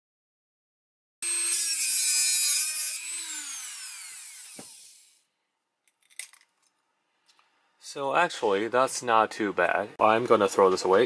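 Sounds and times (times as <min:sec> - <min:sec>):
rotary tool whining: 0:01.2 - 0:05.2.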